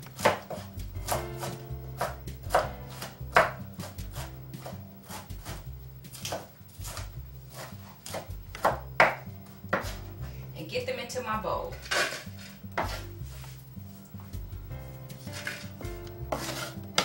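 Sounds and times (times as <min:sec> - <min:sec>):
knife chopping on wooden board: 0:00.1 - 0:10.0, 0:12.8 - 0:13.1, 0:16.3 - 0:17.0.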